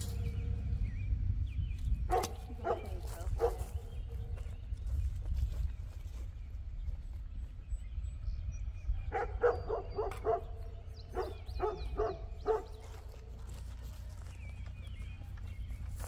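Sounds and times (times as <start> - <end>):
dogs barking: 2.0 - 4.4, 8.9 - 13.7.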